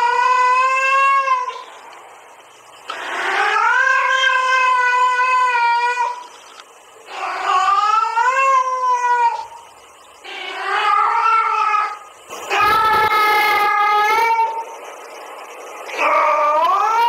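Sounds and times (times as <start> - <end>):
female cat yowling: 10.3 - 14.6.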